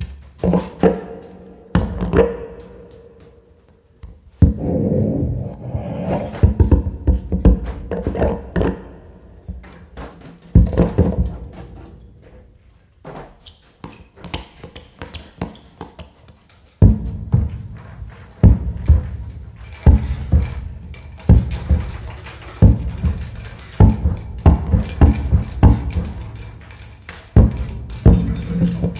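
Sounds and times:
rushes of noise: 4.6s - 6.6s
unpitched knocks and thuds: 16.8s - 28.9s.

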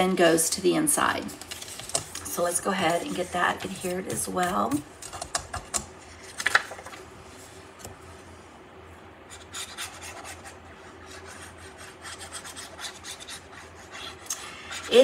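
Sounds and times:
paper crackling: 1.2s - 7.0s.

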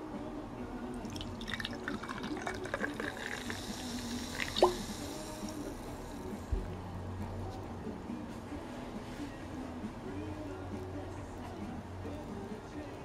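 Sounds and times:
fizzy drink poured into glass: 1.0s - 6.1s.

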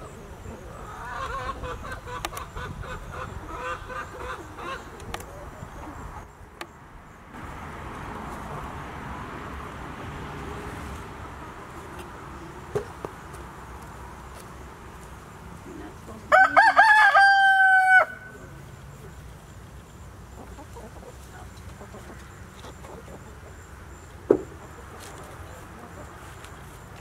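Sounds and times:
rooster crowing: 16.3s - 18.4s.

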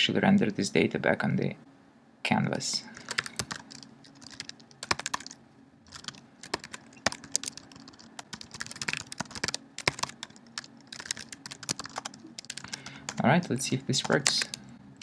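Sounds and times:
keyboard typing: 3.0s - 14.6s.

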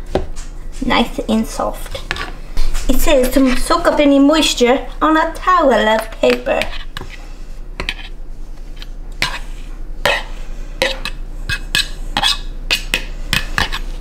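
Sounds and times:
fork scraping inside a bowl: 1.8s - 2.4s, 6.0s - 14.0s.

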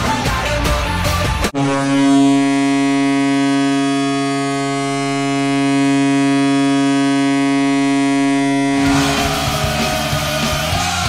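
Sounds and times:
hockey goal horn blast: 1.6s - 11.0s.

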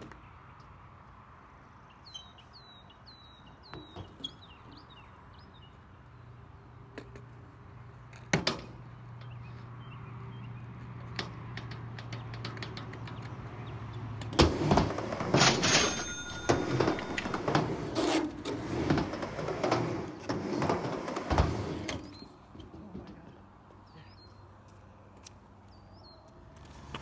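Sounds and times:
skateboard wheels rolling: 14.2s - 22.3s.

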